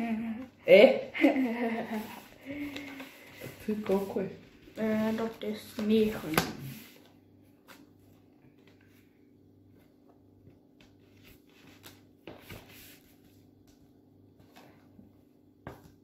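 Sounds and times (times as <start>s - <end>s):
low room hum: 0.0s - 16.0s
playing cards tapping and rustling: 2.5s - 4.3s, 4.9s - 7.0s.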